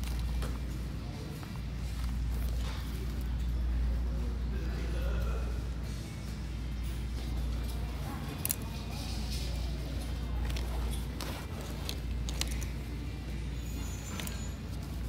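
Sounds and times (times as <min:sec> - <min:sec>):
light clicks of hanging bags: 0:00.0 - 0:03.6, 0:06.9 - 0:15.0
faint background music: 0:00.0 - 0:15.0.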